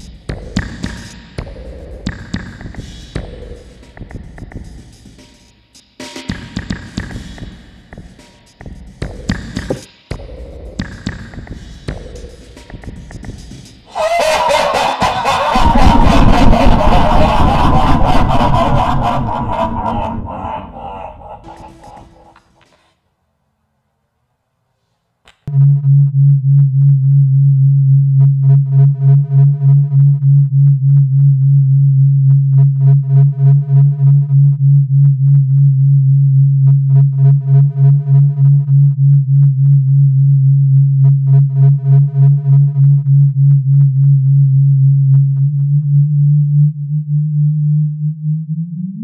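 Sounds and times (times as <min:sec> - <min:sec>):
pulsing low electronic hum: 0:15.4 - 0:20.4, 0:25.5 - 0:49.0.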